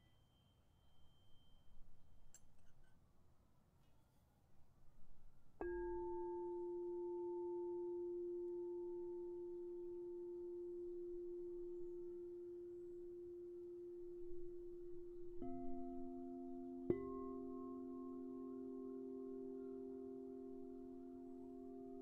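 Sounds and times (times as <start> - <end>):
singing bowl lower tone: 0.0 - 1.8, 5.6 - 22.0
crystal singing bowl ringing: 5.6 - 22.0.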